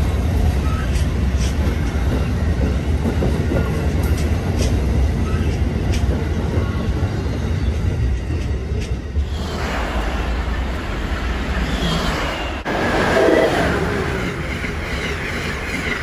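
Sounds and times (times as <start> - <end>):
train cars rumbling past: 0.0 - 16.0.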